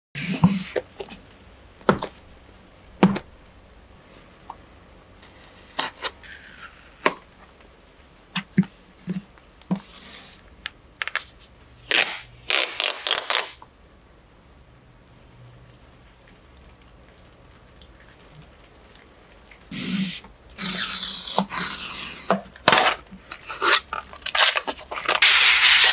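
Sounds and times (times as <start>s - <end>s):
packaging scraping swishes: 20.6s - 25.9s
paper rustling: 22.7s - 25.9s.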